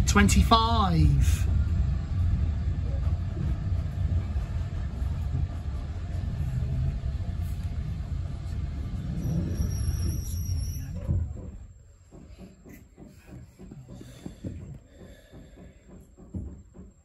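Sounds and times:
railway carriage rumbling: 0.0 - 17.0
high-pitched squeal: 8.5 - 11.2.

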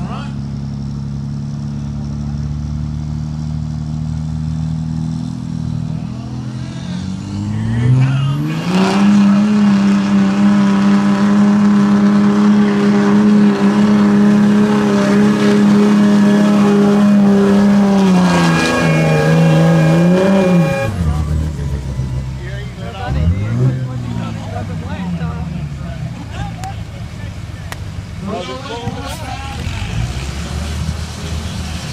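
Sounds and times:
diesel truck engine revving: 0.0 - 31.9.

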